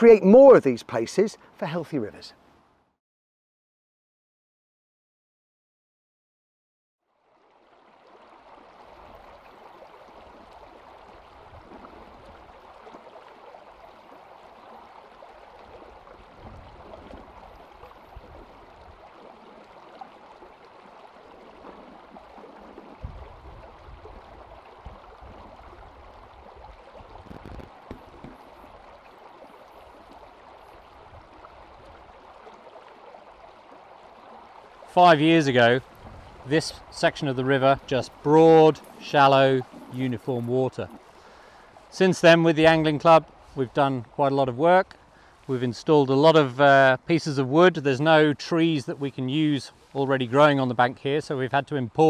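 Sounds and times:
river water flowing over gravel: 0:07.1 - 0:52.0.

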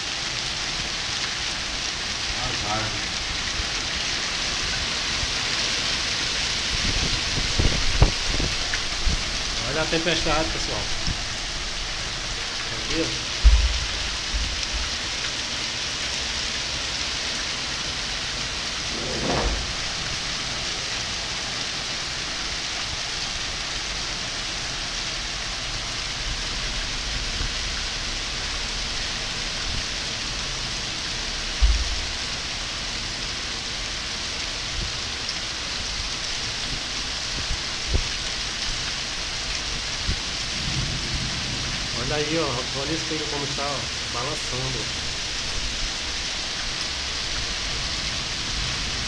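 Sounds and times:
heavy rain pouring: 0:00.0 - 0:49.0
low thump: 0:13.4 - 0:14.6, 0:18.9 - 0:20.0.

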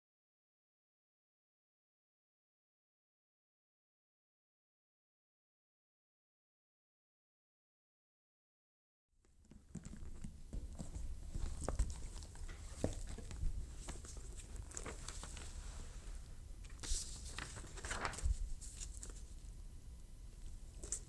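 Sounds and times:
low steady hum: 0:09.2 - 0:21.0
paper rustling: 0:11.0 - 0:19.5.

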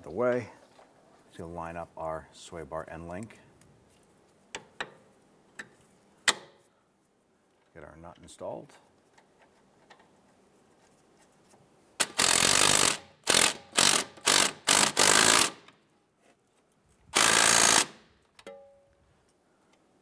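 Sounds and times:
impact wrench bursts: 0:12.0 - 0:15.8, 0:17.2 - 0:18.1.

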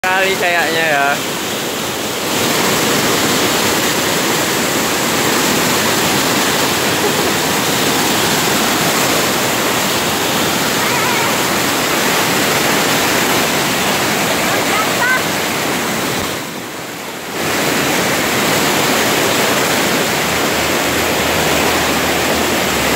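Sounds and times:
waterfall pouring over rocks: 0:00.0 - 0:22.9.

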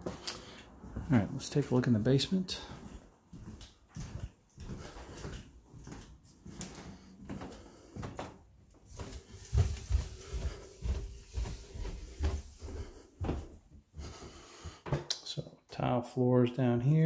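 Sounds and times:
footsteps going down stairs: 0:00.0 - 0:15.2.

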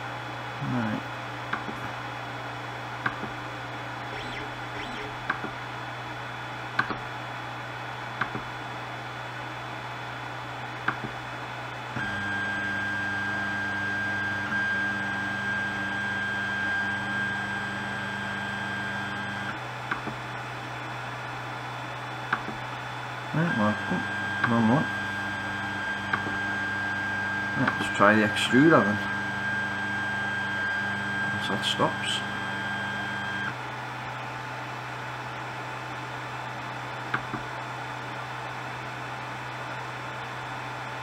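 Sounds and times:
stepper motor whine: 0:04.0 - 0:05.6, 0:12.0 - 0:19.6, 0:23.4 - 0:33.6
low hum: 0:04.0 - 0:05.7.

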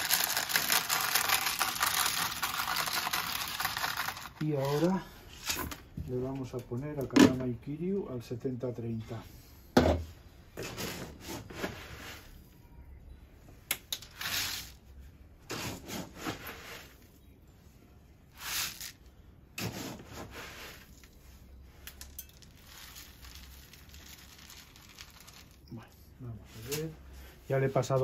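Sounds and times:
plastic scoop scraping: 0:14.1 - 0:14.8, 0:15.4 - 0:17.0, 0:18.3 - 0:19.0, 0:19.6 - 0:21.1
grains poured into plastic colander: 0:22.4 - 0:25.6.

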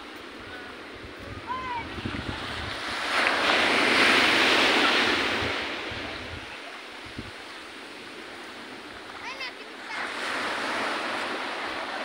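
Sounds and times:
wind rumble on microphone: 0:00.0 - 0:07.6
wave breaking on sand: 0:01.8 - 0:07.3, 0:08.2 - 0:12.0.

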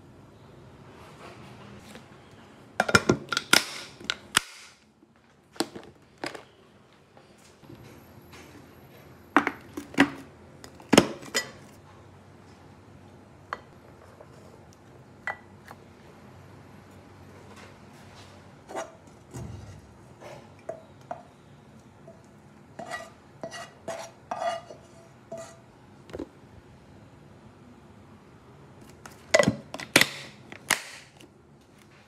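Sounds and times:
plastic lids snapping shut: 0:29.4 - 0:31.2.

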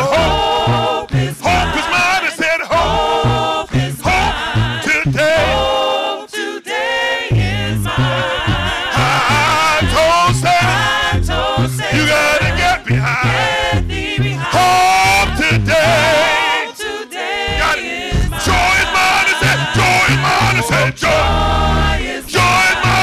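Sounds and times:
group singing with vibrato: 0:00.0 - 0:23.0.

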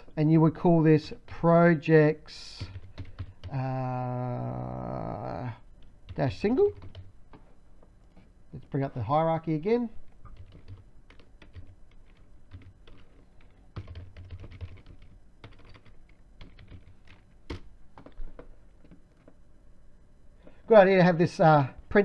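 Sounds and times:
typing on computer keyboard: 0:02.6 - 0:03.6, 0:05.8 - 0:07.1, 0:10.2 - 0:19.4.

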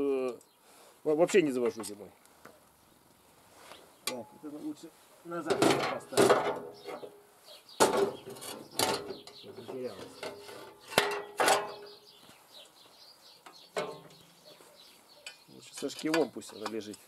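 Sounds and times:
metallic knocks and clanks: 0:05.4 - 0:07.2, 0:07.8 - 0:12.0, 0:13.5 - 0:14.3, 0:15.2 - 0:16.9.

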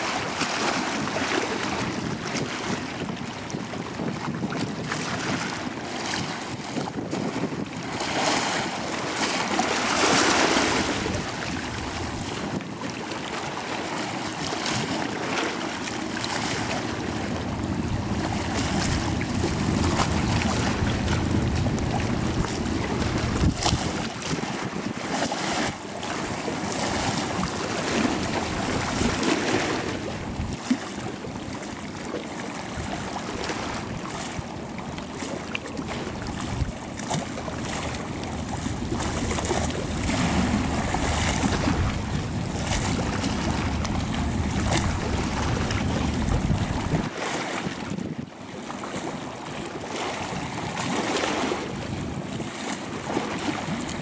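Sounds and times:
wake and choppy water rushing: 0:00.0 - 0:54.0
wind buffeting microphone: 0:00.1 - 0:48.4, 0:49.0 - 0:54.0
ferry engines rumbling: 0:11.0 - 0:12.4, 0:15.9 - 0:24.1, 0:37.2 - 0:47.0.

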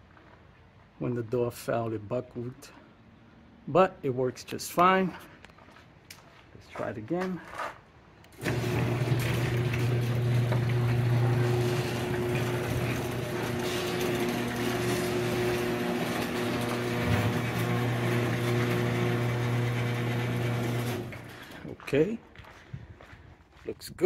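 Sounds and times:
garage door opener motor humming: 0:08.3 - 0:21.6.

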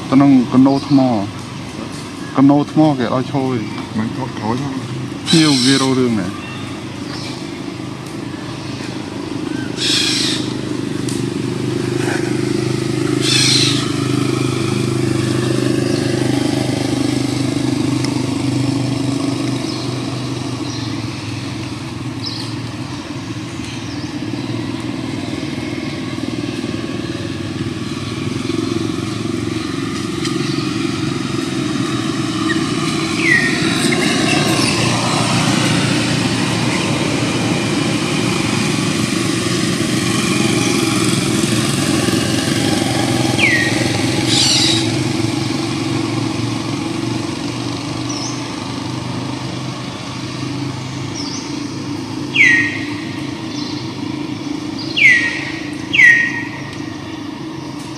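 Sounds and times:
small engine running: 0:00.0 - 0:57.9
high chirp: 0:32.4 - 0:35.0, 0:43.4 - 0:44.9, 0:52.3 - 0:54.0, 0:54.6 - 0:57.0.

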